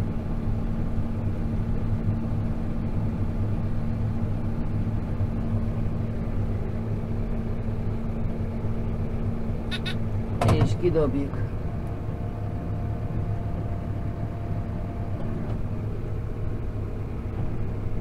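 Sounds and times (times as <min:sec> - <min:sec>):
tractor engine running: 0:00.0 - 0:18.0
short high-pitched sound: 0:09.7 - 0:10.0.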